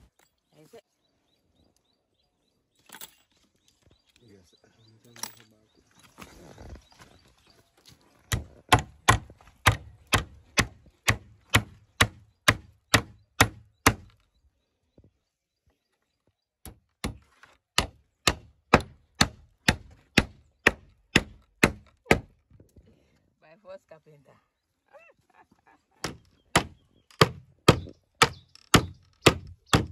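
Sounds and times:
hammer driving nails into wood: 8.3s - 14.2s, 16.6s - 22.3s, 26.0s - 29.9s.

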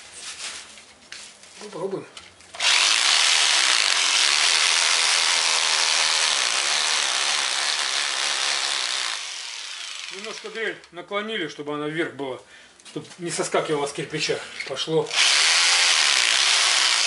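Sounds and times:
rotary hammer drill boring brick: 2.6s - 10.6s, 15.1s - 17.0s.

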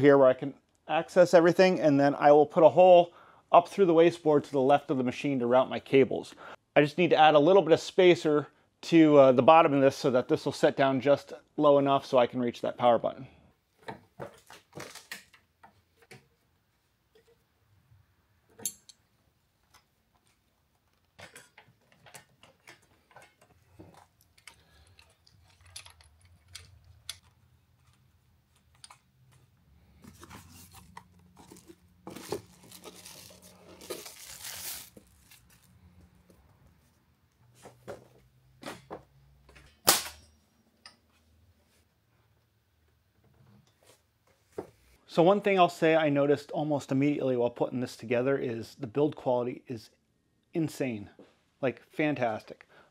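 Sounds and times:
clicks and knocks of metal parts: 18.5s - 19.0s, 20.9s - 28.0s
rustling and crinkling: 19.6s - 38.3s.

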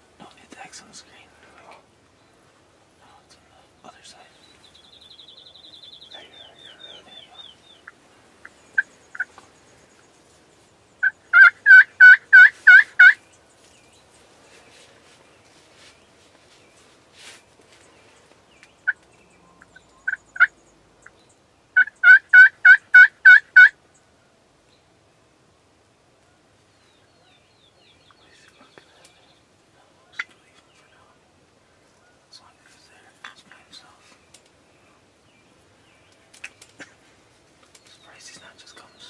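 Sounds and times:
turkey gobbling: 7.8s - 9.4s, 11.0s - 13.2s, 21.8s - 23.8s.

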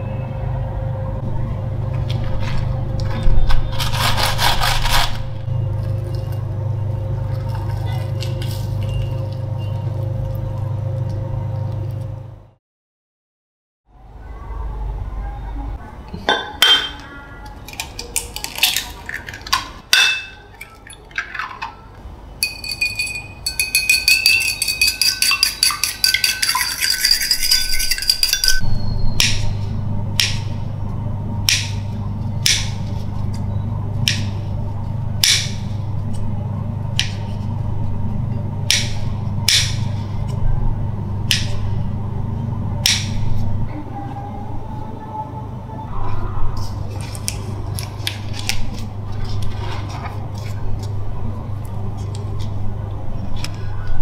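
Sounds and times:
low hum: 0.0s - 12.6s, 22.2s - 54.0s
egg cracking: 17.6s - 19.8s
egg beaten in ceramic bowl: 22.4s - 28.6s.

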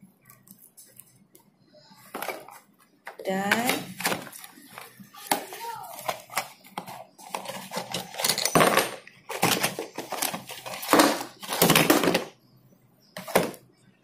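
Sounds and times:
toy parts rustling and clattering: 2.0s - 12.3s, 13.2s - 13.6s.

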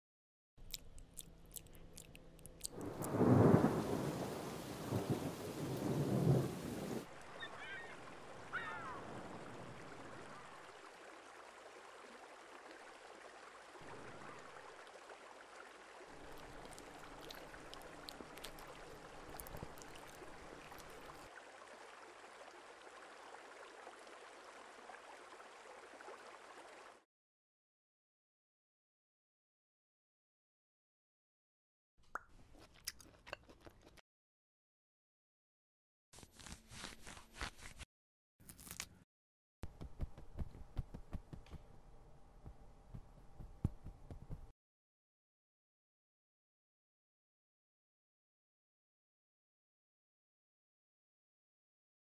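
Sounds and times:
raindrop ticks: 0.7s - 6.4s, 16.2s - 21.3s, 39.7s - 41.7s
rushing water: 2.6s - 27.0s
rain: 2.7s - 27.0s
rolling thunder: 2.8s - 7.0s.

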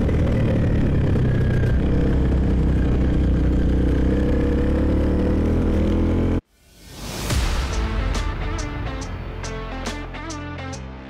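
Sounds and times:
motorcycle engine running: 0.0s - 6.4s.

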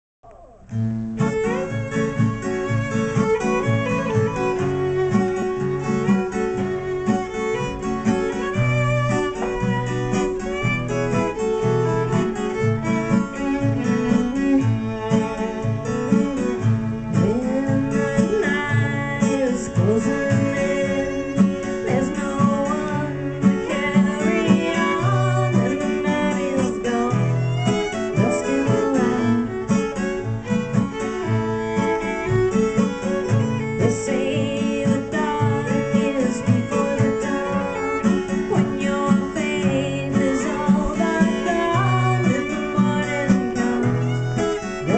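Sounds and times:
acoustic guitar strumming: 0.5s - 44.9s
fiddle playing melody: 0.7s - 44.9s.

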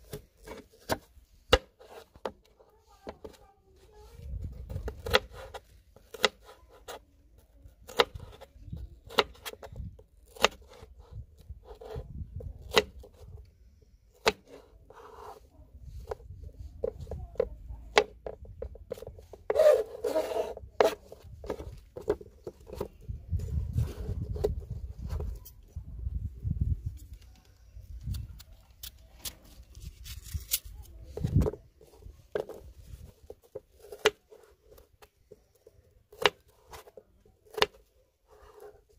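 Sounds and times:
knife scraping: 18.9s - 21.7s.

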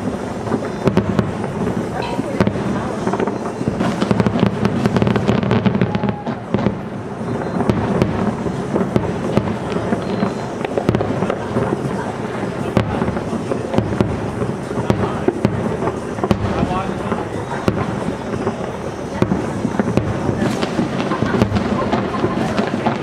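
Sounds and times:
firework bangs and crackles: 0.0s - 23.0s.

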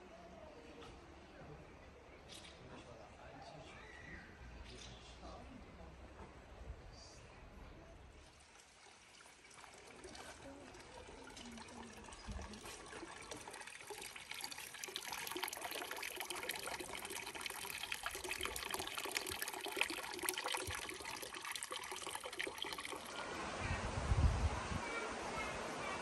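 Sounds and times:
water splashing into fountain trough: 8.2s - 24.0s.

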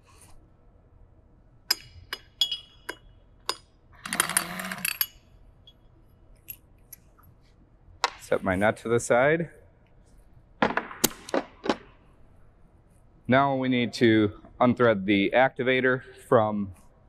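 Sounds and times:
metal socket clinking: 1.7s - 5.8s.

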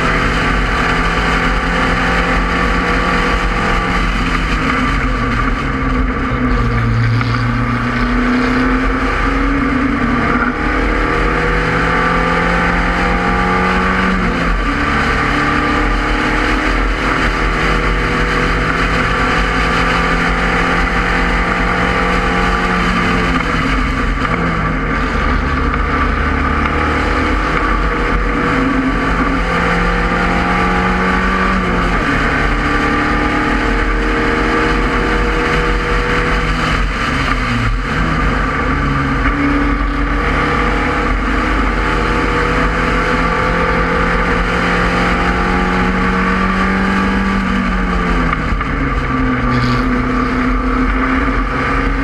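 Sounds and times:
racing car engine running hard: 0.0s - 52.0s.

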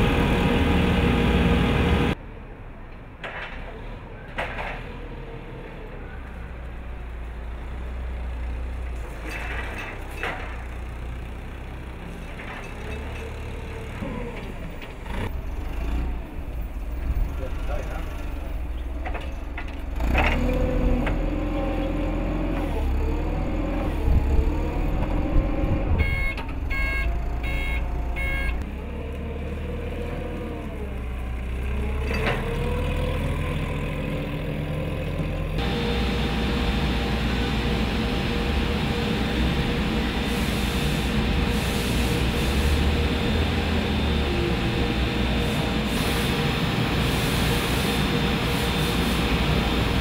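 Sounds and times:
forklift engine revving: 19.8s - 50.0s
backup beeper: 26.0s - 28.6s
hissy machine drone with hum: 35.6s - 50.0s.

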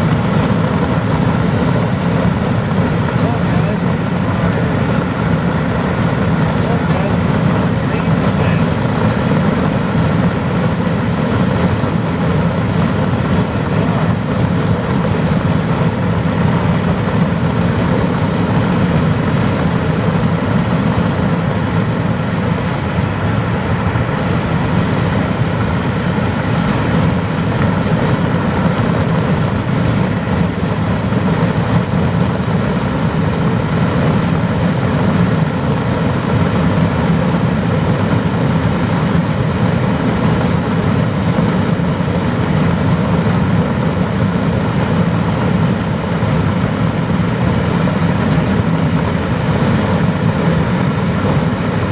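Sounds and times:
car driving at highway speed: 0.0s - 51.9s
wind through open window: 0.0s - 51.9s.

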